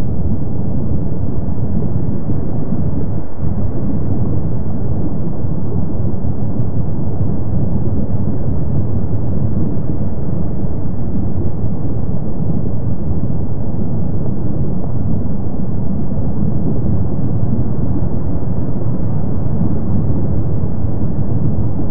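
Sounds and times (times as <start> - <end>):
lava fountains deep rumble: 0.0 - 21.9.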